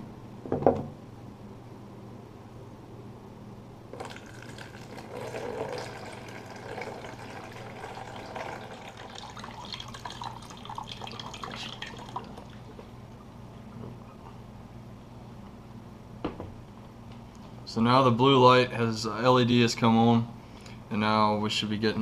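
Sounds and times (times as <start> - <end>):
water pouring into plastic bowl: 4.0 - 12.8.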